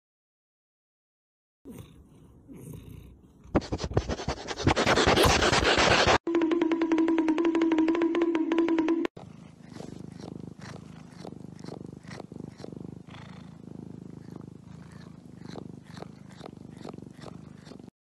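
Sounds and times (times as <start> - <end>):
cat purring: 1.7 - 6.2, 9.2 - 17.9.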